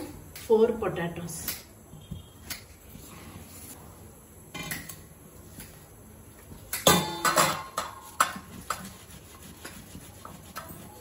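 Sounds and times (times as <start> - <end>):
steel bowl set on counter: 5.6 - 11.0.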